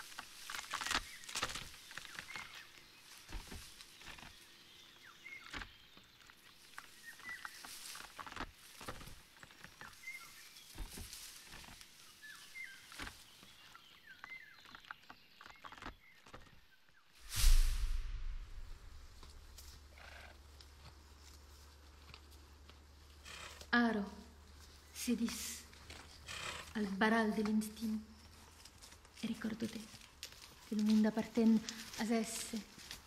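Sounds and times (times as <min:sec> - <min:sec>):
rustling and crackling: 0:00.0 - 0:16.6, 0:17.2 - 0:23.7, 0:24.4 - 0:33.0
loud burst: 0:17.3 - 0:19.2
low steady rumble: 0:17.3 - 0:19.8.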